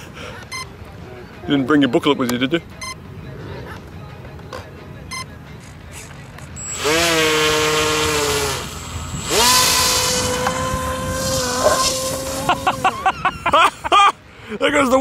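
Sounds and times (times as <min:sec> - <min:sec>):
model plane propeller whine: 0:06.6 - 0:13.0.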